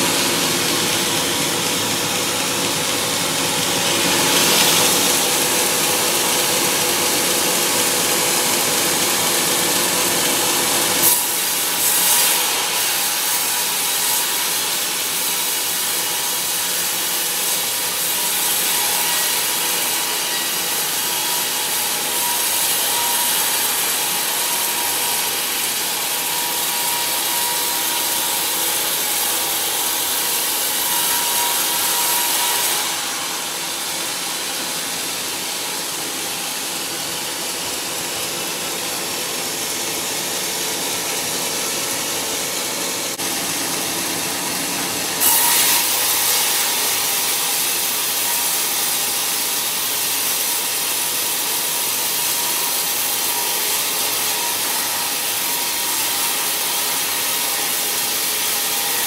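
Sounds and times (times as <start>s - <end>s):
band saw cutting through log: 0.0s - 59.0s.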